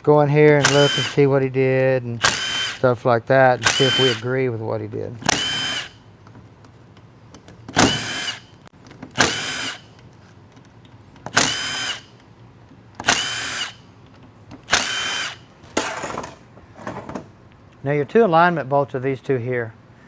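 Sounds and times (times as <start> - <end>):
cordless drill whirring: 0.6 - 1.3, 2.2 - 2.8, 3.6 - 4.2, 5.2 - 6.0, 7.7 - 9.9, 11.3 - 12.2, 13.0 - 13.8, 14.7 - 15.5.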